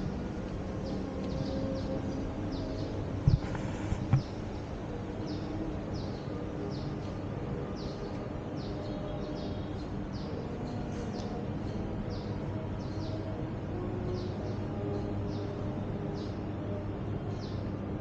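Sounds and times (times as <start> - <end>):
low hum of city traffic: 0.0 - 18.0
bird chirping: 0.8 - 7.2.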